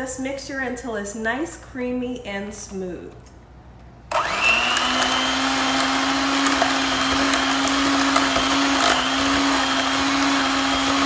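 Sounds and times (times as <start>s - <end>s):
electric mixer running: 4.1s - 11.0s.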